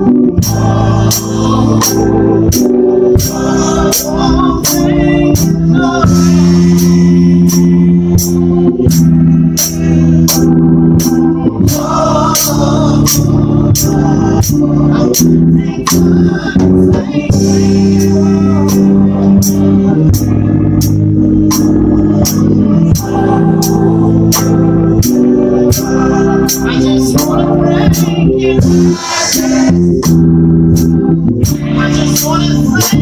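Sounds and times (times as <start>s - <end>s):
voices singing: 0.0s - 8.5s, 9.6s - 20.6s, 21.5s - 33.0s
organ chords: 0.0s - 33.0s
drum kit with cymbal and snare: 0.4s - 33.0s.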